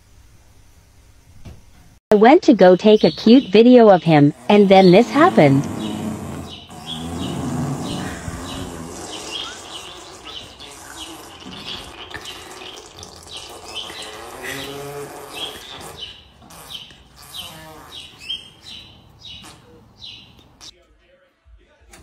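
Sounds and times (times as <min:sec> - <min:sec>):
high chirp: 0:02.7 - 0:14.8
horse groaning in its sleep: 0:04.9 - 0:11.4.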